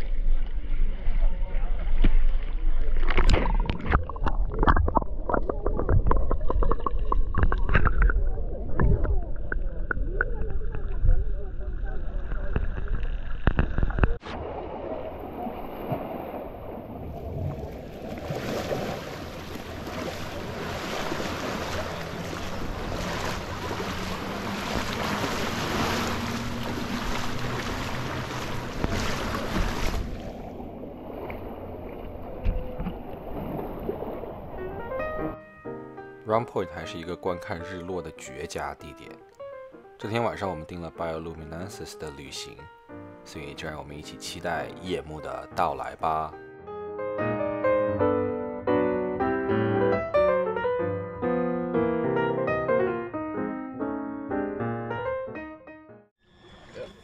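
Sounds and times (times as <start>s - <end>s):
small waves lapping: 0.0s - 34.9s
seawater sloshing and bubbling: 0.0s - 35.4s
underwater pops and clicks: 3.0s - 10.4s, 12.5s - 14.2s
wind on microphone: 3.2s - 14.2s.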